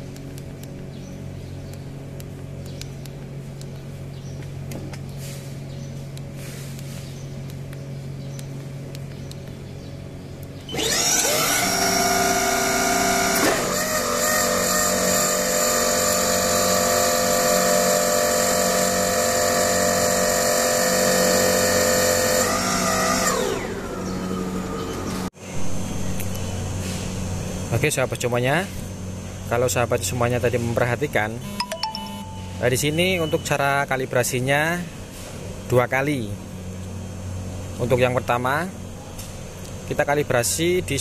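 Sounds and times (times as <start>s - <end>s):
low steady hum: 0.0s - 10.8s, 23.3s - 41.0s
hydraulic pump motor whining: 10.6s - 25.3s.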